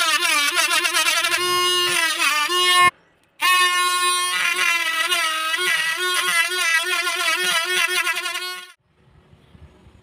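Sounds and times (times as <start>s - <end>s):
small drill motor whining: 3.7s - 8.8s.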